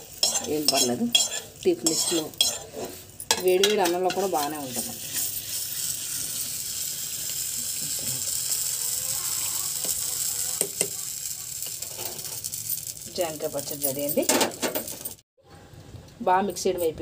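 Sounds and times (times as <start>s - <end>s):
steady hiss: 4.4s - 12.7s.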